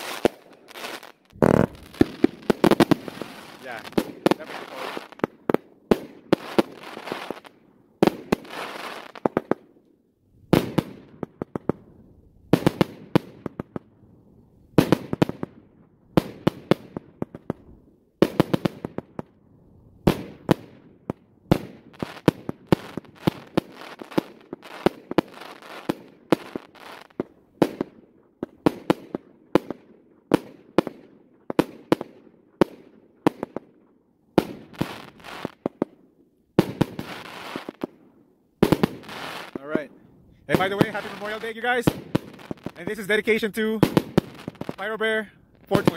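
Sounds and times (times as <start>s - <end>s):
fireworks reports: 0.0s - 5.5s, 38.8s - 45.9s
fireworks crackling: 0.0s - 9.6s, 21.5s - 29.7s, 34.4s - 35.9s, 36.6s - 38.0s, 38.6s - 45.9s.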